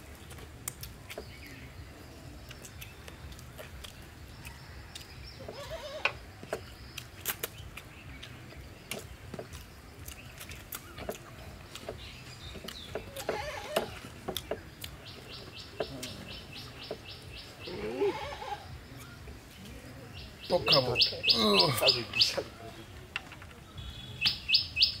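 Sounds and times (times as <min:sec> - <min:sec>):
wet chewing and mouth smacking: 0:00.0 - 0:05.4, 0:06.3 - 0:17.7
bird chirping: 0:00.0 - 0:25.0.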